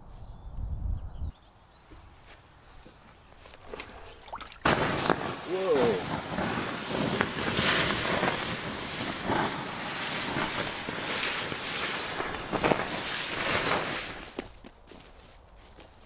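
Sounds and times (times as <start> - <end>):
embers hissing and sizzling: 3.4 - 14.5
sharp pops: 3.7 - 14.5.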